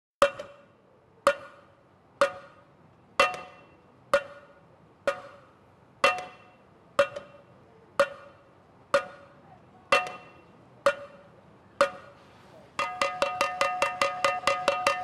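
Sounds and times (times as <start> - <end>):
sharp ringing percussion strikes: 12.8 - 15.0.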